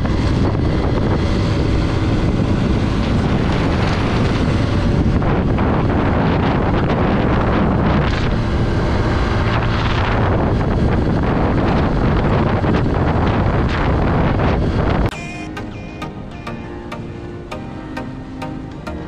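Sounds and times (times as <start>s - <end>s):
motorcycle engine running: 0.0s - 14.6s
wind buffeting microphone: 0.0s - 15.1s.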